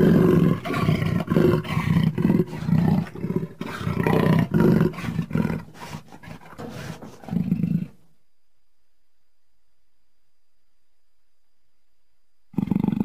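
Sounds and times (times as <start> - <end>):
jaguar roaring: 0.0 - 8.0.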